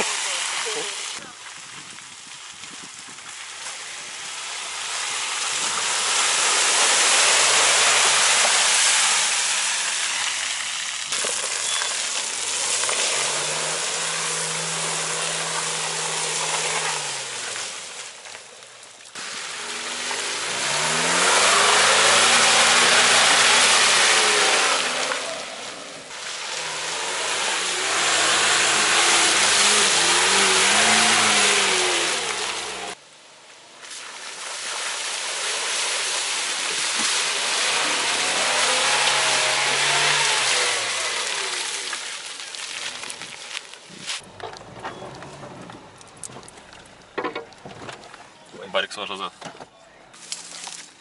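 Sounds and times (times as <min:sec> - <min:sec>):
engines revving in mud: 0:03.8 - 0:18.4, 0:19.2 - 0:33.0, 0:34.9 - 0:47.2.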